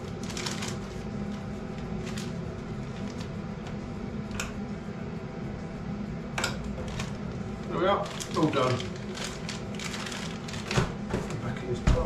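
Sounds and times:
plastic bags crinkling: 0.0 - 3.4, 6.8 - 11.1
steady low hum: 0.0 - 12.0.

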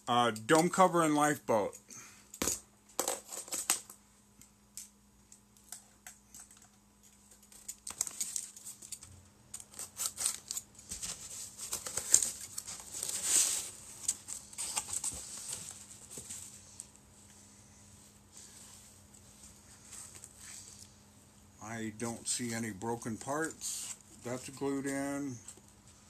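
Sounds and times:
cardboard and tape rustling: 7.4 - 16.9.

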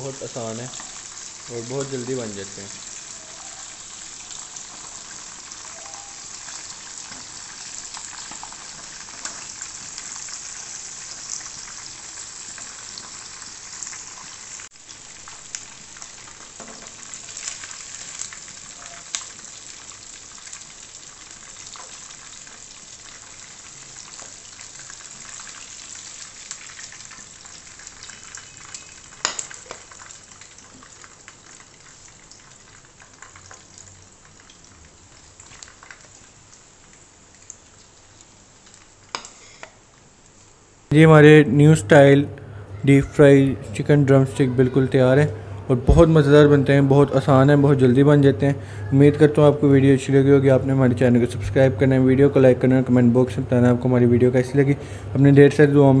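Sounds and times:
chicken deep-frying in oil: 0.0 - 40.4.

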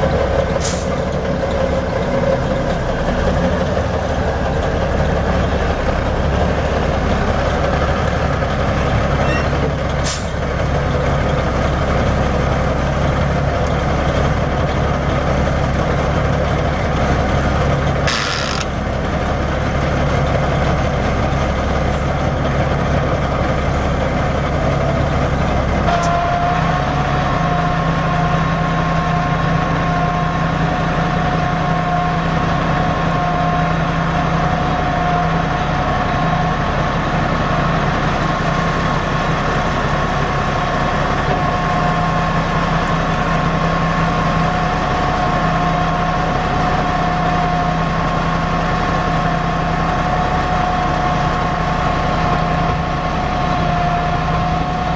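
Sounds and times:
diesel truck engine running: 0.0 - 54.9
hydraulic pump two-tone whine: 18.0 - 18.8.

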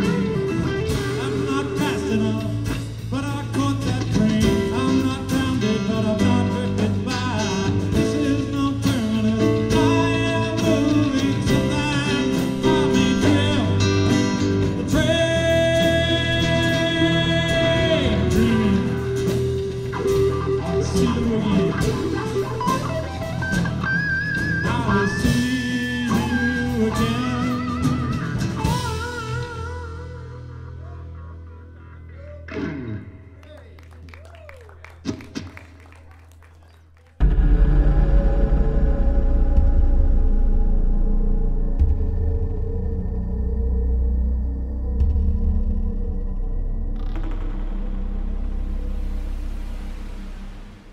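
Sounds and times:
rock band playing live: 0.0 - 33.3.

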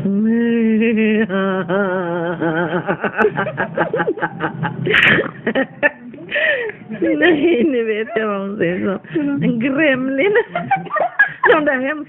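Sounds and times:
person singing: 0.0 - 4.3.

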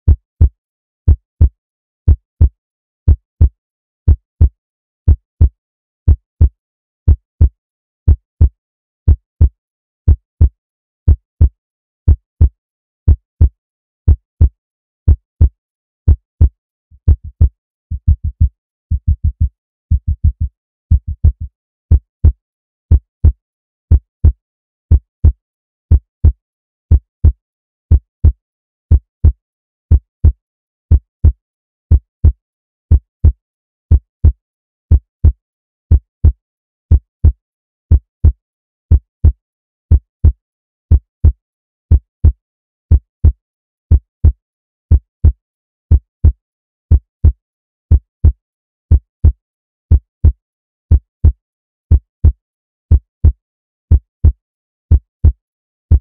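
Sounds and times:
heartbeat thumps: 16.1 - 22.0.

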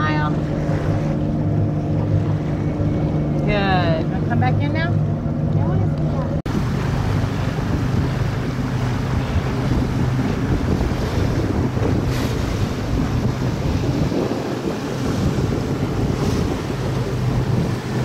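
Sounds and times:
low engine hum: 0.0 - 18.0
water rushing along hull: 0.0 - 18.0
wind buffeting microphone: 0.0 - 18.0.

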